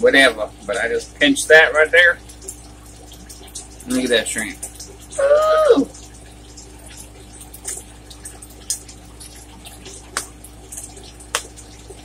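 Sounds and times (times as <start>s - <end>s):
wet eating smacks and clicks: 7.6s - 7.9s, 8.6s - 11.8s.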